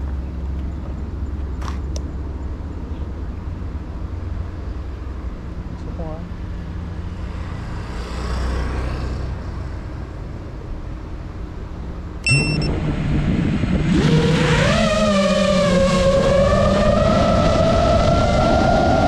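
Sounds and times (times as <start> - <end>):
low outdoor rumble: 9.5 - 19.0
short high beep: 12.2 - 12.7.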